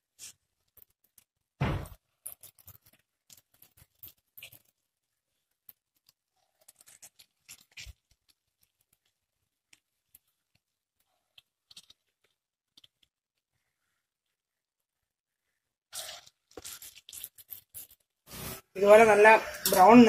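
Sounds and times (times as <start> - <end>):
hot oil crackling and popping: 0.0 - 10.7, 11.3 - 13.2, 15.9 - 18.7.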